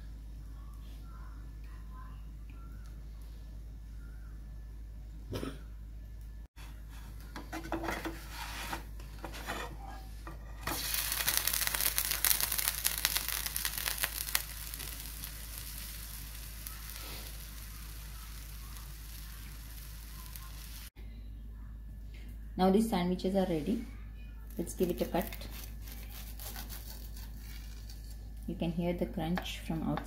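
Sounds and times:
butter sizzling in a frying pan: 0:10.6 - 0:20.9.

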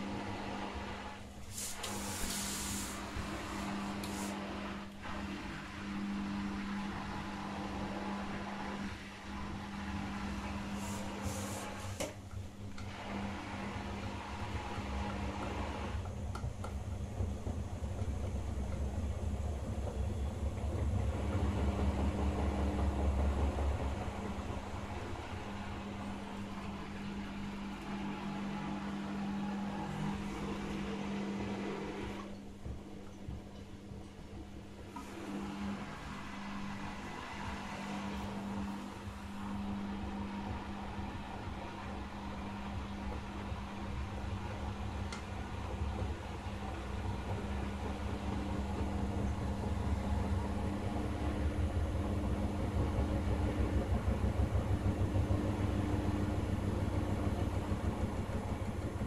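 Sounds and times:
washing machine drum whooshing: 0:00.0 - 0:59.0
washing machine motor hum: 0:00.0 - 0:59.0
short hisses: 0:01.4 - 0:03.2.

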